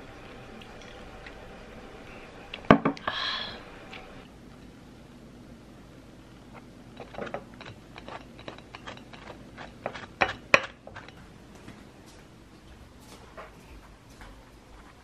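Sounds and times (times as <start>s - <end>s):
spoon tapping and scraping plate: 7.0s - 11.3s.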